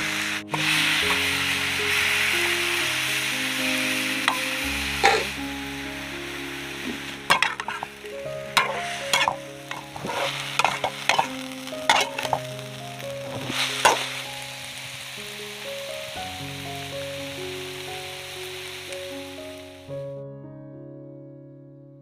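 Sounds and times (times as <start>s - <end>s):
mushrooms sizzling in a wok: 0.0s - 20.0s
background music: 0.0s - 22.0s
spatula scraping and knocking pan: 6.9s - 12.5s.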